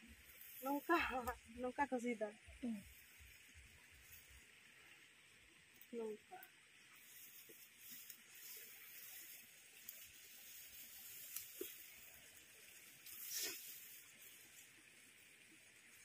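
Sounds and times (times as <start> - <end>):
rustling rice plants: 0.0 - 1.8, 6.8 - 16.0
swish of leaves: 6.9 - 14.7.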